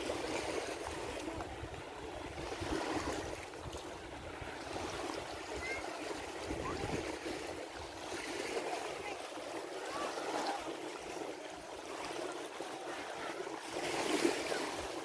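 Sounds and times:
small waves on sandy shore: 0.0s - 15.0s
faint voices: 8.5s - 15.0s.

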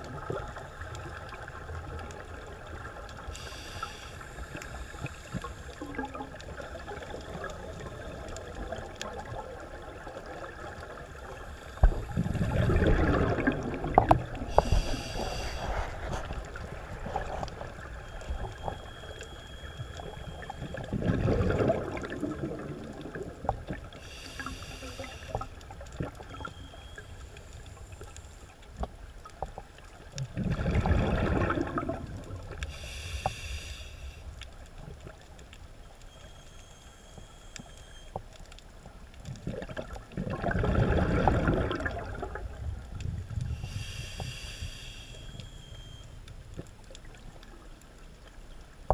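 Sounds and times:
faint clicks: 0.0s - 9.3s, 22.8s - 30.3s, 32.2s - 40.0s, 42.8s - 48.9s
exhaled bubbles underwater: 0.0s - 28.1s, 29.3s - 33.7s, 39.2s - 47.7s
regulator hiss: 3.3s - 5.8s, 14.5s - 16.1s, 24.0s - 25.6s, 32.7s - 34.3s, 43.5s - 46.0s.

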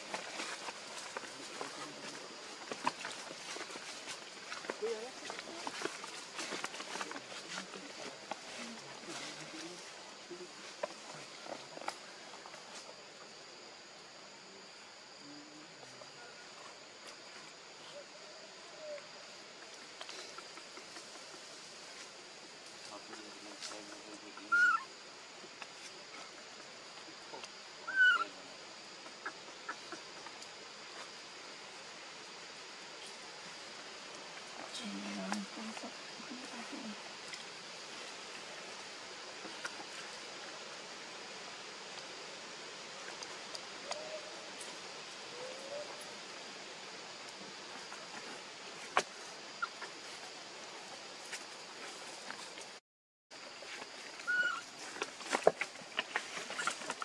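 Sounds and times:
faint outdoor background: 0.0s - 57.0s
insect chorus: 0.0s - 57.0s
faint chirps: 53.7s - 54.7s.

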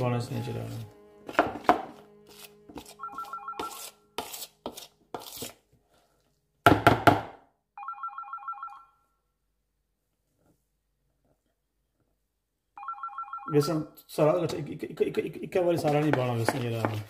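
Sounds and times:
phone ringtone trilling: 3.0s - 3.9s, 7.8s - 9.0s, 12.8s - 13.8s.

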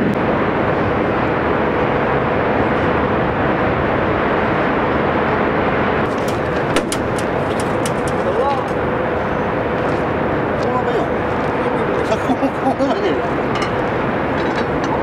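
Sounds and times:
mechanical drone with whine: 0.0s - 15.0s
sharp click: 6.2s - 8.2s.

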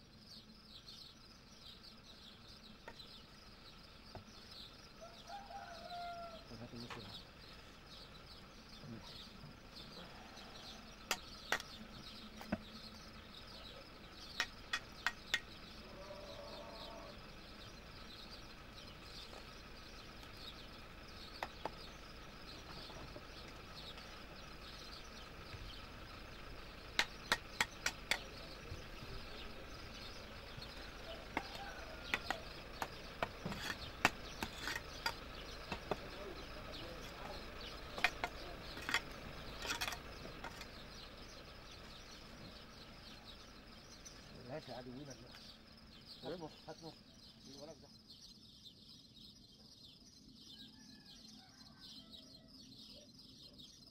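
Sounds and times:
trowel tapping bricks: 14.4s - 15.5s, 27.0s - 28.3s, 31.3s - 36.2s, 38.0s - 40.7s.

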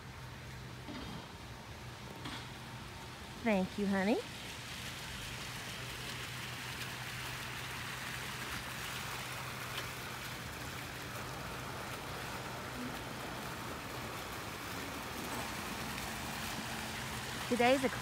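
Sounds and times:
splashing water hiss: 0.0s - 18.0s.

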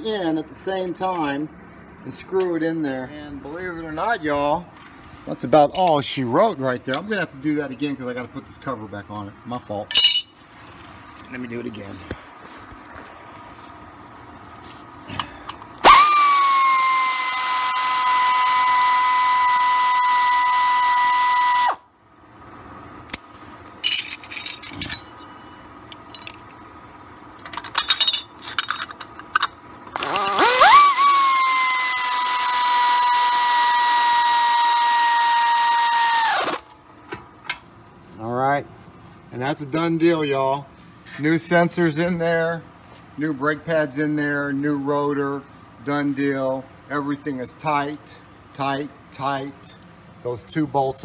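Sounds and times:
light metal clinks and taps: 9.9s - 10.4s, 23.8s - 26.6s
power ratchet whining: 15.2s - 21.8s, 27.4s - 36.8s.

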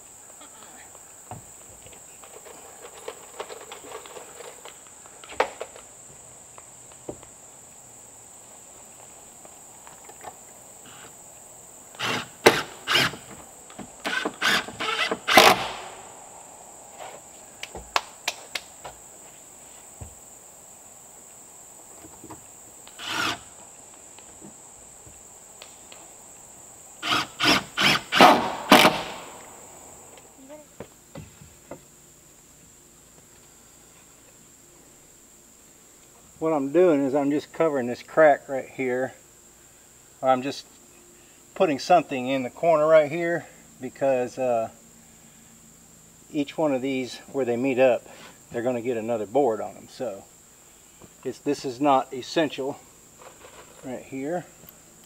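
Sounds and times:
high insect drone: 0.0s - 55.0s
hammer driving nails into wood: 27.1s - 29.3s.

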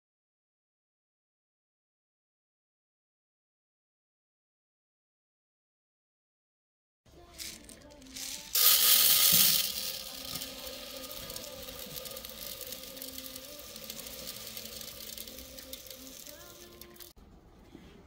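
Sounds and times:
rice pouring into metal tin: 7.4s - 17.1s.

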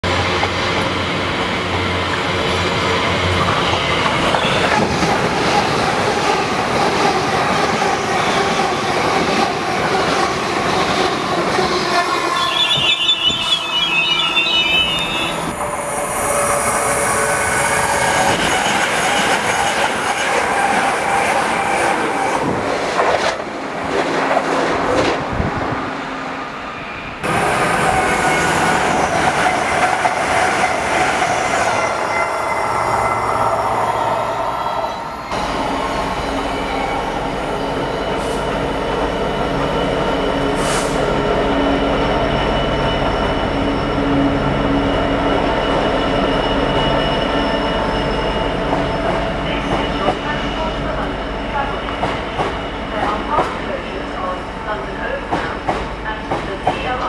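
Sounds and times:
high-pitched wheel squeal: 12.2s - 22.3s
train wheels clacking on rails: 51.9s - 53.8s, 54.7s - 57.0s.

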